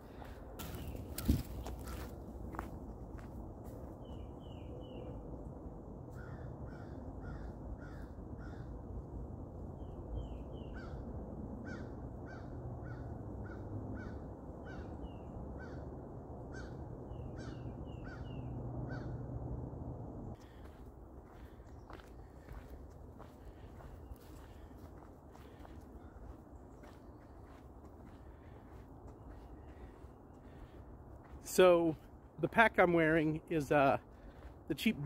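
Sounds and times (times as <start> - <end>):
birds calling: 0.0 - 5.2, 16.5 - 19.2, 20.4 - 35.0.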